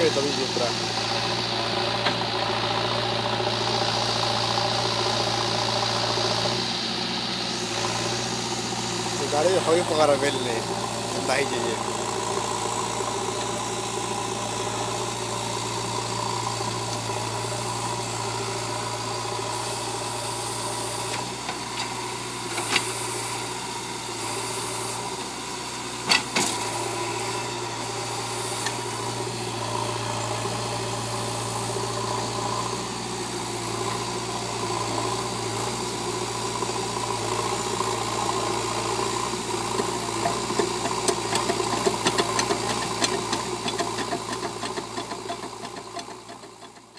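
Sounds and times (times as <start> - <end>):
diesel engine running: 0.0 - 46.9
rattling clatter: 39.7 - 46.9.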